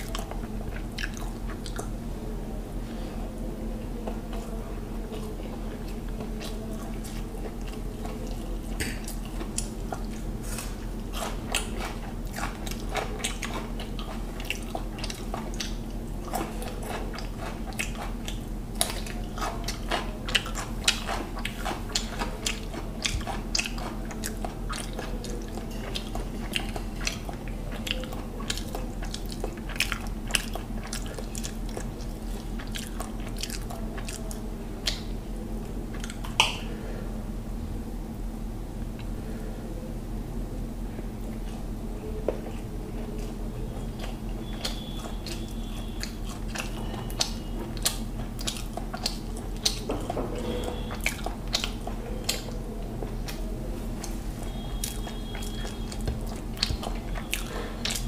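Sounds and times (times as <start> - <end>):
man chewing food: 0.0 - 2.1, 3.8 - 36.7, 41.2 - 58.0
steady low hum: 0.0 - 58.0.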